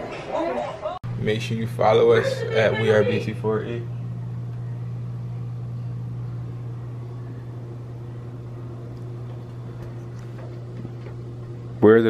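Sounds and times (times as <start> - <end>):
low room hum: 0.0 - 12.0.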